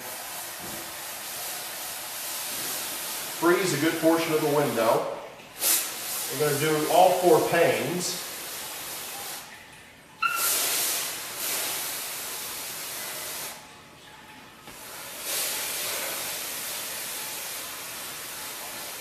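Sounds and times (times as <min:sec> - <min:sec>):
compressed air can hissing: 0:05.6 - 0:09.4, 0:10.2 - 0:13.6, 0:15.0 - 0:19.0.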